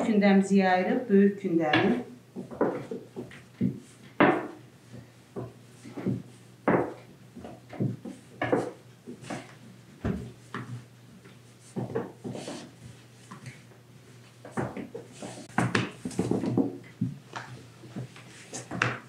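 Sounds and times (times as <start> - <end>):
rolling pin knocking on board: 1.7 - 4.6, 5.4 - 7.0.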